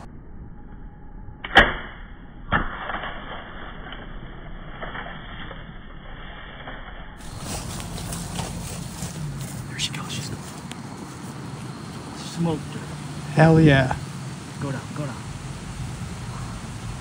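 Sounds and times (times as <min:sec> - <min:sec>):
rustling and crackling of deer running: 0:04.6 - 0:12.6.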